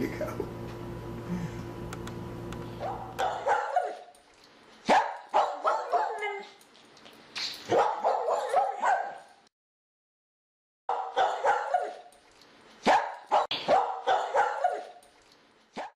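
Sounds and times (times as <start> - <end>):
dog barking: 2.8 - 4.2, 4.8 - 6.6, 7.7 - 9.4, 10.9 - 12.1, 12.8 - 15.0.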